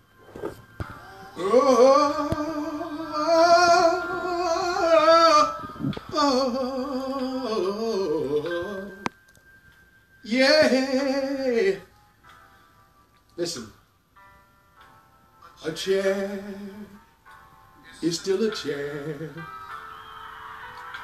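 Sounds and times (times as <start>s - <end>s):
man singing unaccompanied: 1.0s - 9.0s, 10.3s - 11.8s, 15.6s - 17.0s, 17.8s - 19.6s.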